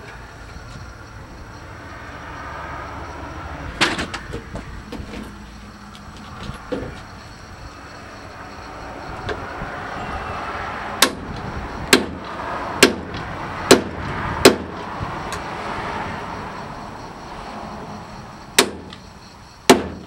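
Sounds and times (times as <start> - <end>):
hammer striking metal punch: 11.0 - 11.2, 11.9 - 14.7, 18.6 - 19.0, 19.7 - 20.0.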